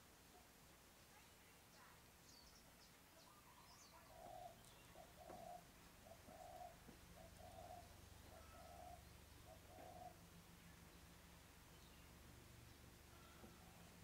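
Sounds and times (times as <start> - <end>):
faint low hum: 0.0 - 14.0
bird cooing: 3.2 - 10.4, 13.1 - 14.0.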